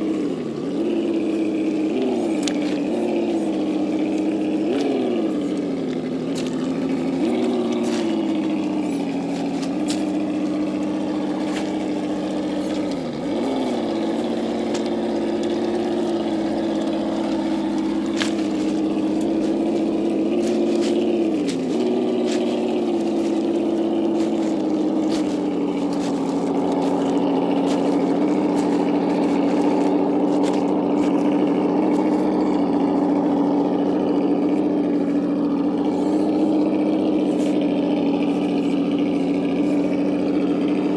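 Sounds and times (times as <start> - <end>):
simulated engine sound from small speaker: 0.0 - 40.9.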